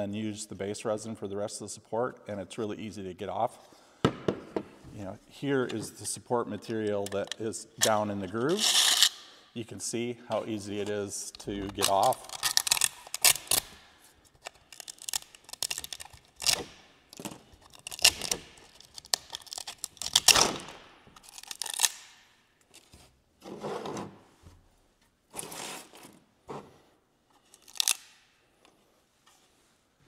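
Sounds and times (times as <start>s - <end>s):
plastic support tearing off: 11.4s - 22.2s.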